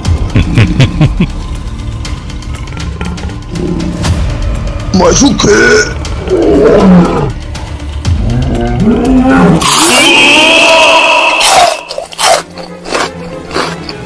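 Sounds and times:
lion roaring and growling: 6.1 - 7.4, 8.1 - 12.4.

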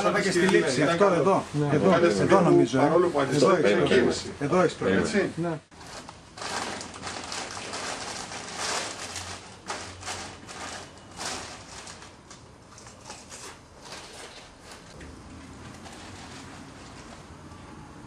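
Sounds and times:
plastic bag rustling: 5.7 - 17.5.

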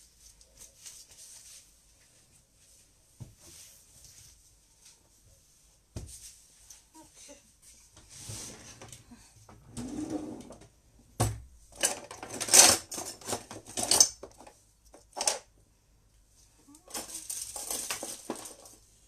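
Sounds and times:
dishes and cutlery clattering: 11.8 - 14.5.

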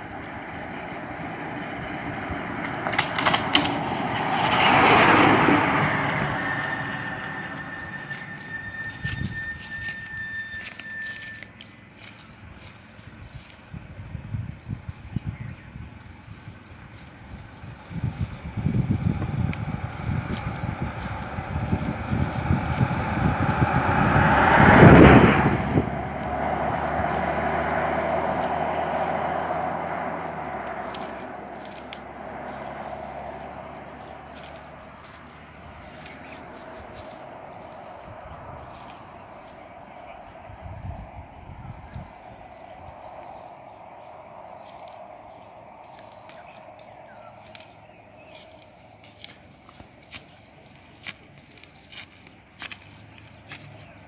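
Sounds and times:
car driving past: 0.0 - 11.4, 17.4 - 48.4.

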